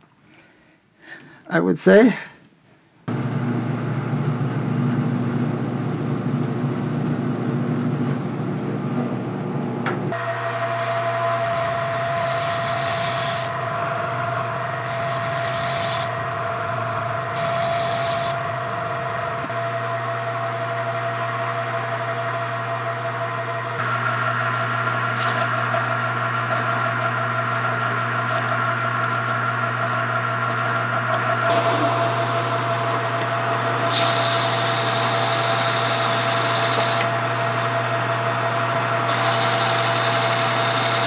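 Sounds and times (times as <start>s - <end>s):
lathe motor hum: 9.3s - 41.0s.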